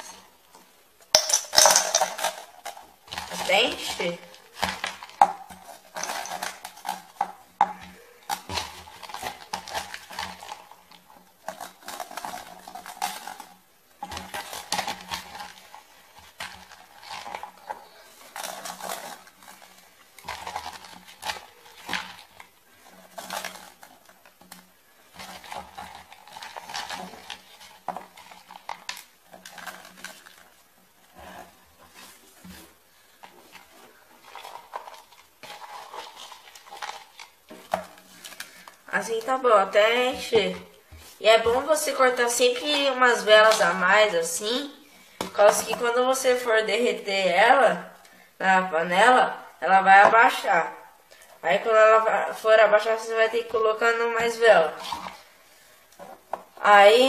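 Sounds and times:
candle pieces clinking in a can: 1.1 - 2.5.

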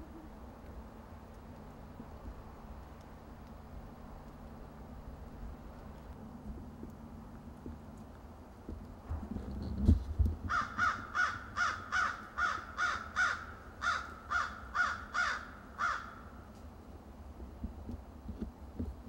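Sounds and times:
crow cawing: 10.5 - 16.3.

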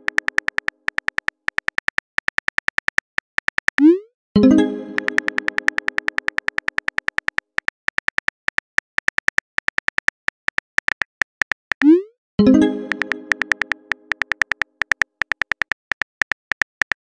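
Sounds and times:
phone keyboard typing clicks: 0.0 - 3.9, 4.9 - 12.0, 12.8 - 17.0
musical chime: 4.4 - 5.6, 12.4 - 13.9.

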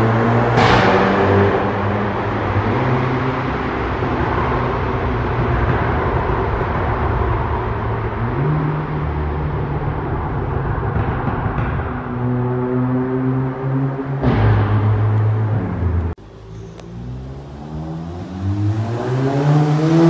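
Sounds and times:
car engine rumble in tunnel: 0.0 - 20.0.

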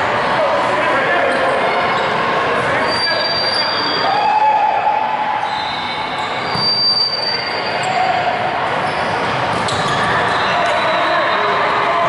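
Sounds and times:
short high squeak: 2.8 - 4.1, 5.4 - 8.1.

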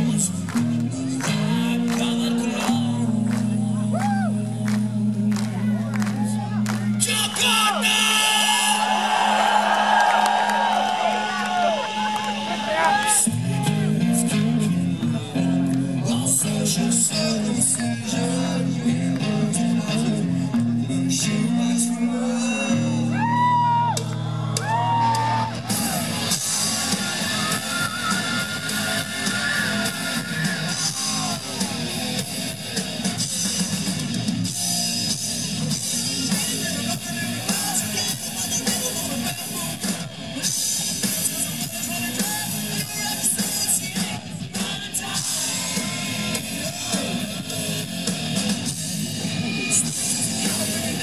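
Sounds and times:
guitar and bass riff: 0.0 - 8.6, 11.5 - 51.0
drums and cymbals: 23.8 - 51.0.

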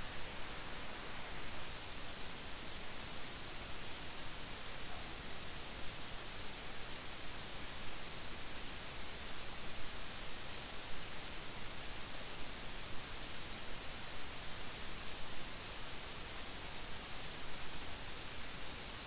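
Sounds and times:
recording hiss: 0.0 - 19.0.

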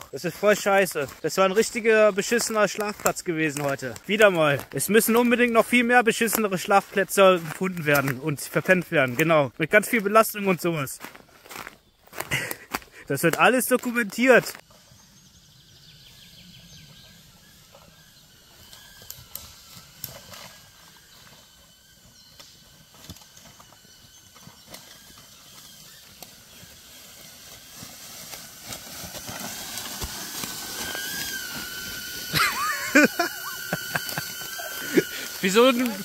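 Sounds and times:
footsteps in dry leaves: 0.0 - 15.2, 16.9 - 36.0
drone propellers whining: 14.3 - 36.0.

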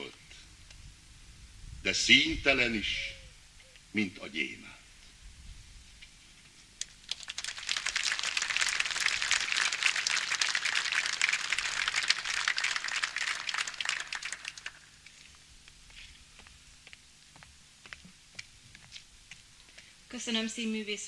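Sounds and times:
audience applauding: 7.1 - 15.1.

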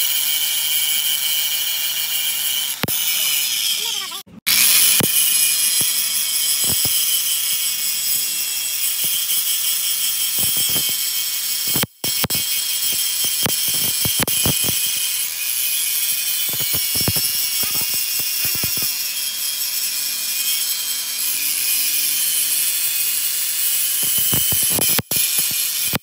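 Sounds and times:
angle grinder grinding steel: 0.0 - 26.0
sharp scratchy clicks: 2.6 - 7.7, 8.7 - 19.0, 23.7 - 26.0.

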